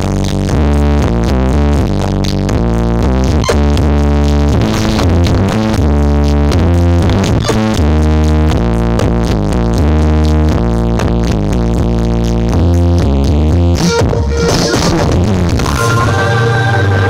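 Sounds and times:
heavy bass notes: 0.0 - 17.0
synthesizer melody: 13.8 - 17.0.

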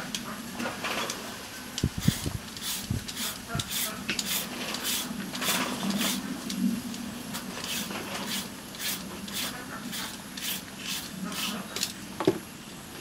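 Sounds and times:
peeler scraping carrot: 2.0 - 6.2, 7.6 - 11.8.

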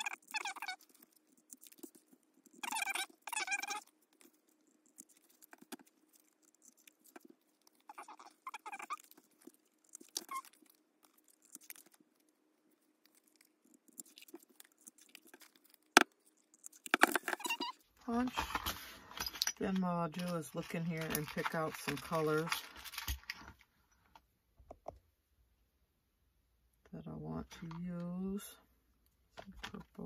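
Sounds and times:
hand punch squeaking: 0.0 - 1.0, 2.5 - 3.9, 7.9 - 9.1, 9.9 - 10.6, 16.6 - 17.8.

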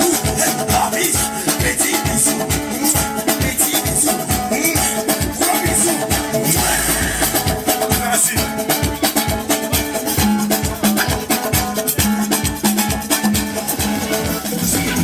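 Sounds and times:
upbeat dance music: 0.0 - 9.0.

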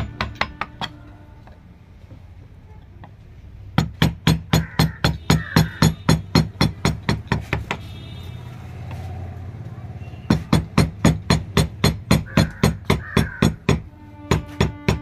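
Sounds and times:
mallet striking chisel into wood: 0.0 - 1.1, 3.0 - 7.8, 10.3 - 15.0.

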